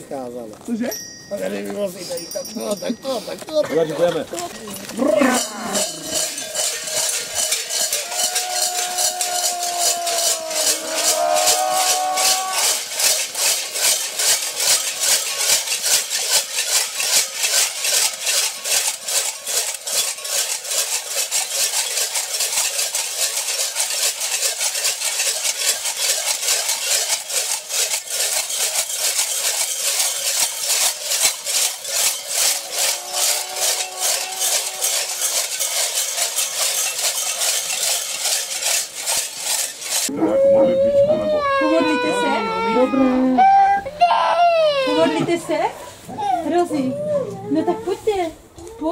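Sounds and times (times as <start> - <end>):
bells jangling with steps: 0.5 - 20.6, 24.4 - 40.1
wavering drawn-out call: 8.0 - 12.8, 32.4 - 35.5, 40.1 - 45.1.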